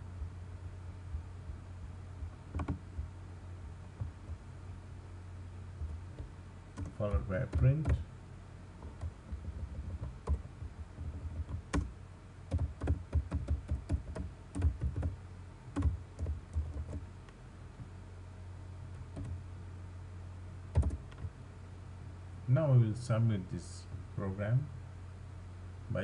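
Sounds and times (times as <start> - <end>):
computer keyboard typing: 2.5 - 2.8, 6.2 - 8.0, 8.8 - 11.9, 12.5 - 17.0, 19.1 - 19.4, 20.7 - 21.3.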